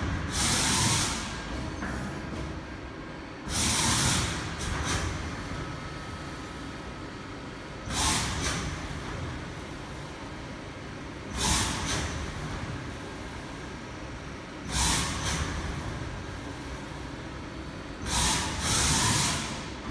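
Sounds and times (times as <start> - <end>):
compressed air hissing bursts: 0.3 - 1.4, 3.5 - 5.2, 7.8 - 8.8, 11.3 - 12.2, 14.7 - 15.6, 18.0 - 19.7.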